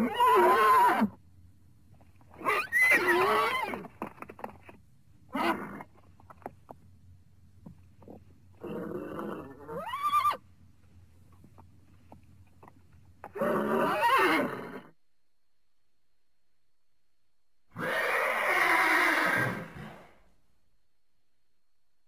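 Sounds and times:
horse whinnying: 0.0 - 1.2, 2.4 - 3.9, 8.6 - 10.4, 13.3 - 15.0, 17.7 - 20.1.

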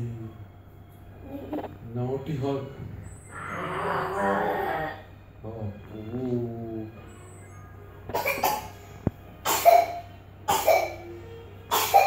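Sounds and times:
person coughing: 8.2 - 8.7.

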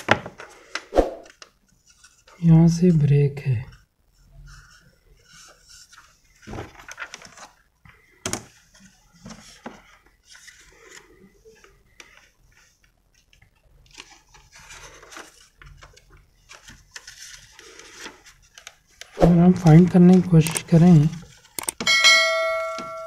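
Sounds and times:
plastic sheet rustling: 4.4 - 11.7.

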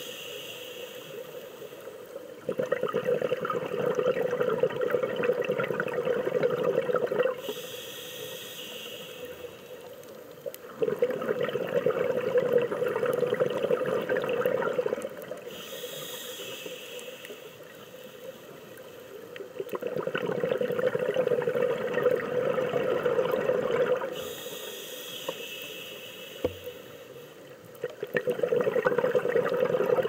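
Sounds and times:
regulator inhale hiss: 0.0 - 2.4, 7.4 - 10.3, 15.3 - 19.3, 24.0 - 27.6
exhaled bubbles underwater: 2.4 - 7.5, 10.6 - 15.6, 19.5 - 24.3, 27.8 - 30.0.

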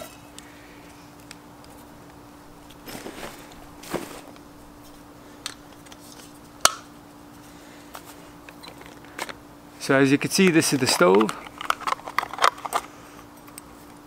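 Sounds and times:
faint steady hum: 0.0 - 14.0
rustling of gear: 2.6 - 5.0.

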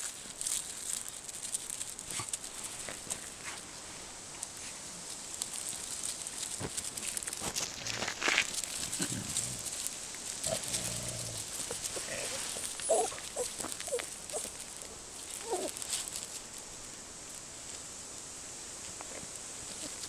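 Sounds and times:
dog grunting: 8.9 - 9.7, 10.4 - 14.4
dog squeaking: 12.6 - 14.5.

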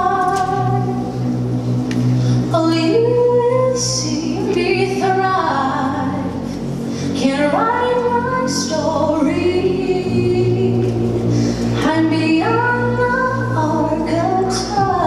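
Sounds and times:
low accompaniment: 0.0 - 15.0
women singing: 2.6 - 6.3, 7.2 - 10.8, 11.8 - 15.0.

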